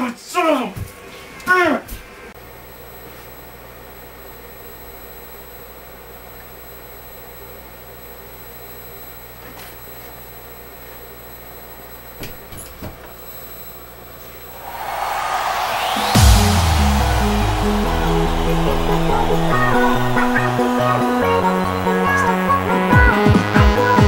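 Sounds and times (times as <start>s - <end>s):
rushing noise: 14.6s - 21.8s
thin high whine: 14.6s - 22.9s.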